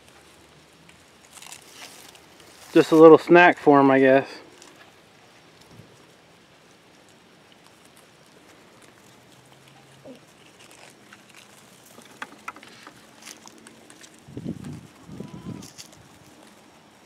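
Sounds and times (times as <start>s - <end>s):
twigs crackling and snapping: 0.0s - 17.0s
goat bleating: 15.0s - 15.8s.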